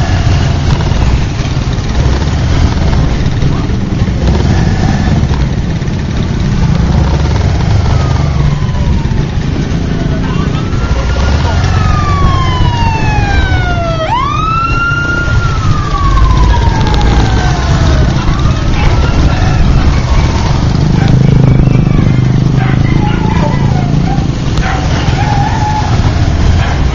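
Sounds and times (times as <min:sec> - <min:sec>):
motorbike rumbling in traffic: 0:00.0 - 0:26.9
siren wailing: 0:06.6 - 0:26.9.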